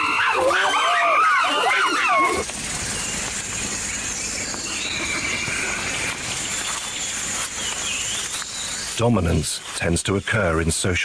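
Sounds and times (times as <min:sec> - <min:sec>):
high-pitched animal squeal: 0:00.0 - 0:02.4
insect drone: 0:00.0 - 0:10.5.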